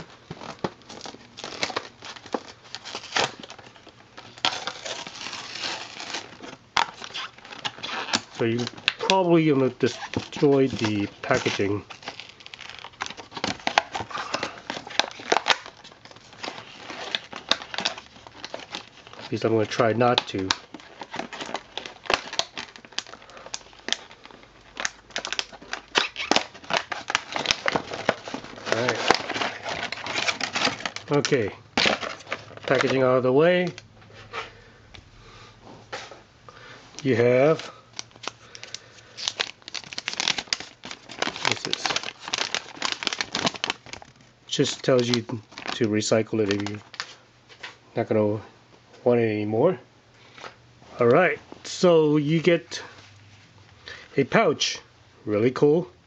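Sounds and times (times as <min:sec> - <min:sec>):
packaging snapping: 0:00.0 - 0:33.0, 0:37.0 - 0:47.2
plastic packaging crinkling: 0:00.0 - 0:33.8, 0:36.6 - 0:47.8.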